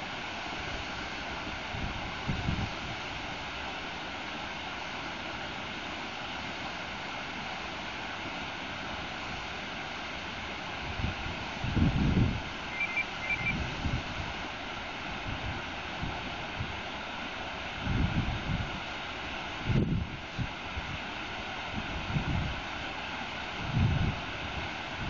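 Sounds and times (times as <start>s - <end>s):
water rushing over rocks: 0.0s - 25.0s
wind buffeting microphone: 10.9s - 14.4s.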